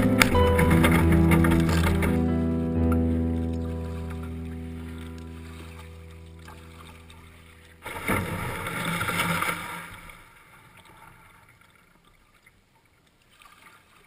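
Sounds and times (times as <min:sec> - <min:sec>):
water swishing along kayak hull: 0:00.0 - 0:14.0
water lapping: 0:03.5 - 0:14.0.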